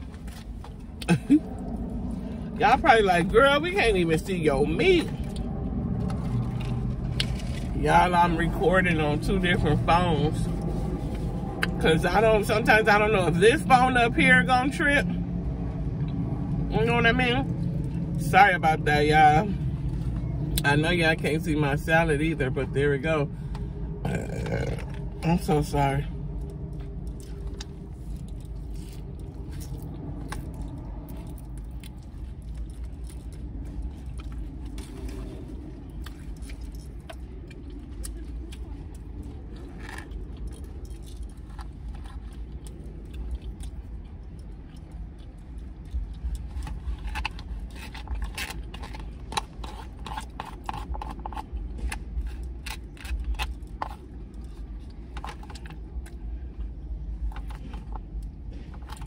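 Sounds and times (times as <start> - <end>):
chewing: 0.0 - 2.6, 4.1 - 12.0, 23.4 - 59.0
low rumble: 0.0 - 59.0.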